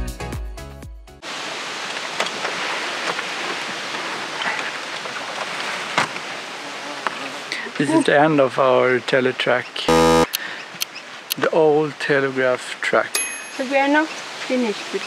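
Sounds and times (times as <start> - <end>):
background music: 0.0 - 1.2
steady outdoor hiss: 1.2 - 15.0.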